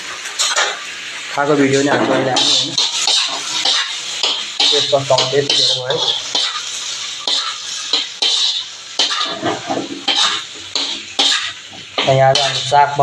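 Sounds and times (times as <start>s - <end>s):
fish sizzling in a wok: 0.0s - 13.0s
scraping and knocking against pan: 7.3s - 12.7s.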